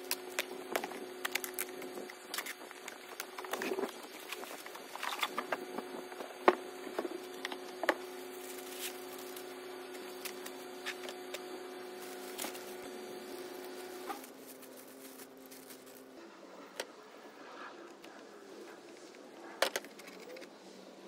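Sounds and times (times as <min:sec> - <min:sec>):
steady hum: 0:00.0 - 0:21.0
packaging rustling: 0:07.0 - 0:16.2.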